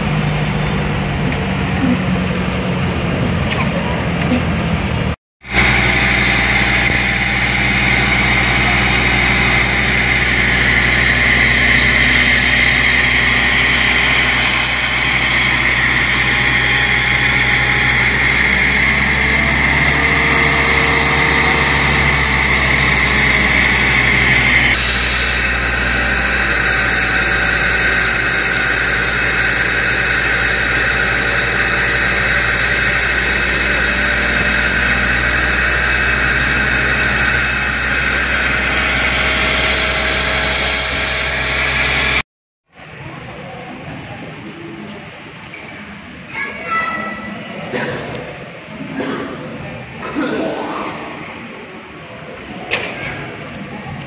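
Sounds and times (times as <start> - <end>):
vehicle engines idling: 0.0 - 42.2.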